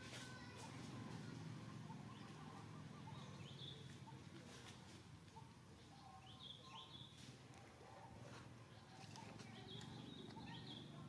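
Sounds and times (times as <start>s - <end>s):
distant bird chirps: 8.6s - 11.0s.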